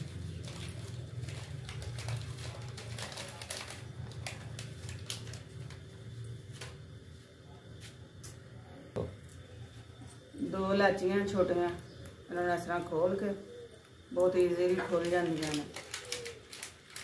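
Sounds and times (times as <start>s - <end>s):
saucepan ticking and crackling: 13.8s - 17.0s.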